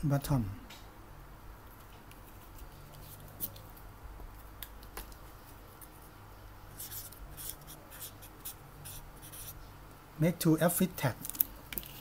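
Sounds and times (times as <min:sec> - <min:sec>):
marker scratching on paper: 0:06.7 - 0:09.6.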